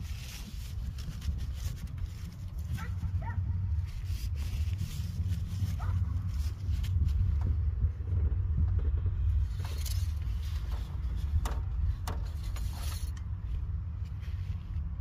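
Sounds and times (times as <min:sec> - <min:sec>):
steady low rumble: 0:00.0 - 0:15.0
dipstick clicks and scrapes: 0:08.8 - 0:13.4.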